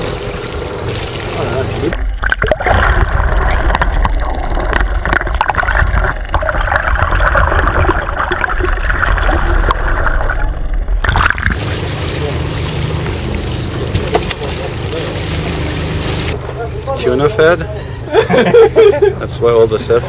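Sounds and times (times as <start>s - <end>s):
steady mid-range hum: 0.0s - 3.4s, 6.8s - 20.0s
underwater water rumble: 0.0s - 16.6s
boat noise: 0.0s - 20.0s
underwater clicks and crackles: 0.6s - 16.4s.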